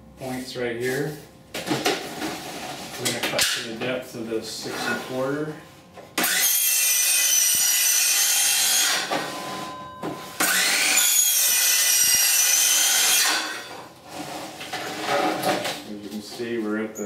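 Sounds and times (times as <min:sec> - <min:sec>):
circular saw cutting siding: 0:06.2 - 0:09.1, 0:10.4 - 0:15.2.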